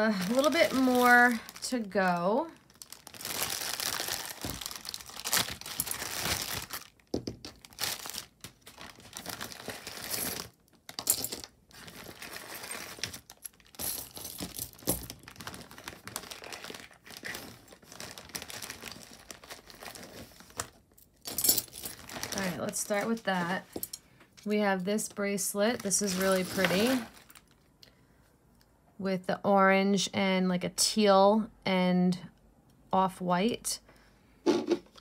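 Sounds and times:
jewelry clinking and rattling: 11.0s - 11.6s, 12.4s - 15.2s, 21.2s - 22.1s.

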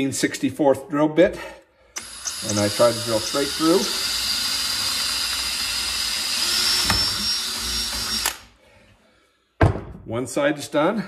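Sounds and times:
cordless drill boring: 2.0s - 8.5s.

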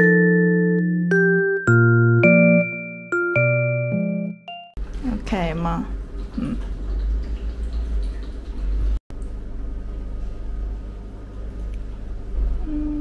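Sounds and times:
faint water sounds: 4.9s - 9.3s.

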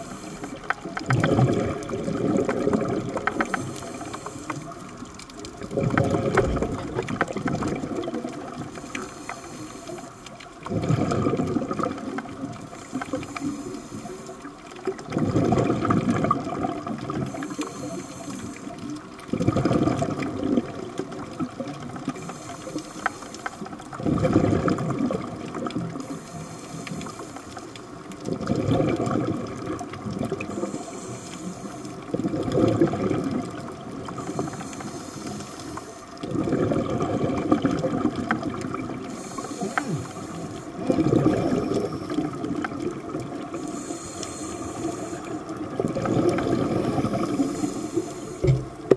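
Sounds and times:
regulator inhalation hiss: 0.0s - 0.6s, 3.3s - 4.8s, 8.7s - 10.3s, 12.7s - 14.4s, 17.3s - 18.7s, 22.2s - 23.6s, 26.0s - 27.7s, 30.5s - 32.0s, 34.1s - 36.1s, 39.1s - 40.8s, 43.6s - 45.4s, 46.7s - 48.6s
exhaled bubbles rushing underwater: 0.0s - 48.9s.

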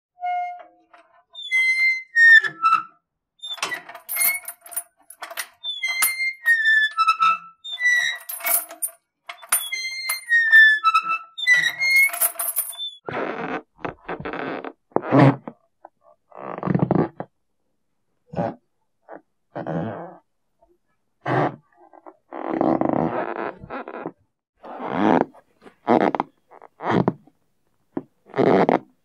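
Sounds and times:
high-pitched squeaks: 1.4s - 13.0s
coarse creaks: 3.4s - 17.3s, 21.2s - 28.9s.

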